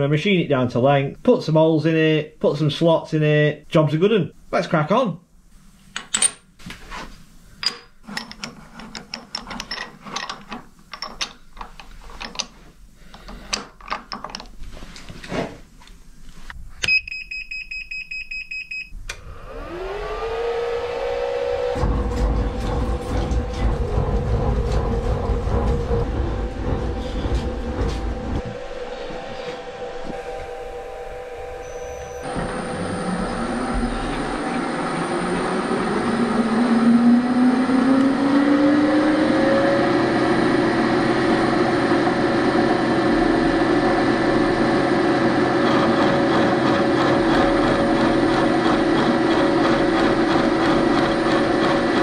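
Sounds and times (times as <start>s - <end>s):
vise clicks and knocks: 7.6s - 14.6s, 21.8s - 29.3s
milling machine motor whine: 19.1s - 52.0s.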